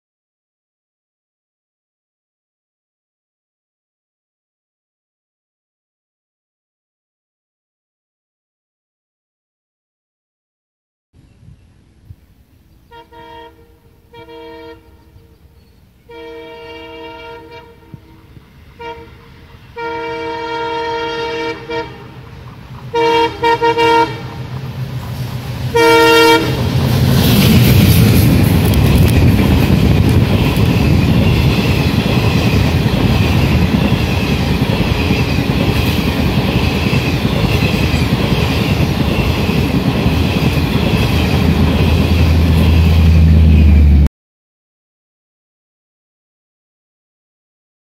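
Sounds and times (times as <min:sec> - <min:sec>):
train coaches rumbling over track: 0:12.5 - 0:44.1
locomotive horn blasts: 0:12.9 - 0:22.3, 0:22.9 - 0:24.5, 0:25.7 - 0:26.7
locomotive engine and wheel noise: 0:16.7 - 0:44.1.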